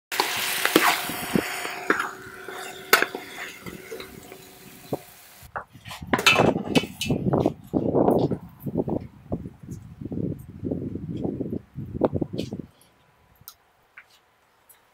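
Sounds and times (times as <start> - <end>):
hiss: 0.1 - 5.5.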